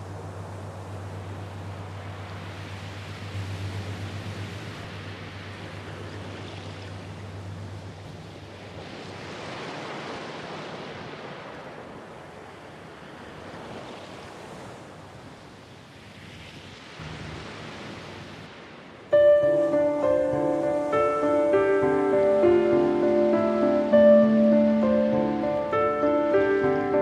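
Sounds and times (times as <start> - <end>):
low engine hum: 0.0 - 9.1, 17.0 - 18.2
ship's wake water rushing: 0.0 - 27.0.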